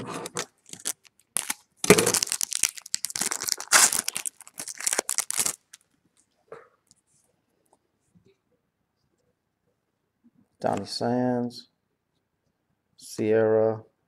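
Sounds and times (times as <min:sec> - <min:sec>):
foil wrapper tearing and crinkling: 0:00.2 - 0:05.8.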